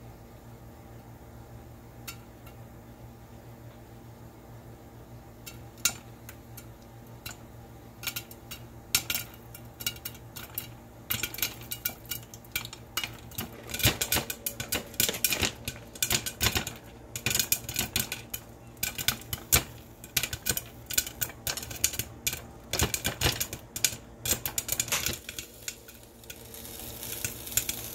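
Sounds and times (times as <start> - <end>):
popcorn popping in covered pan: 2.0 - 2.7, 5.2 - 27.9.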